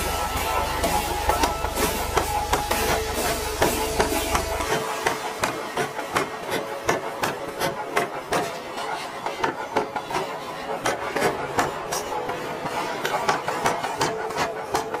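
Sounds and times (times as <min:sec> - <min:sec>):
hammer striking hot iron: 0:00.0 - 0:15.0.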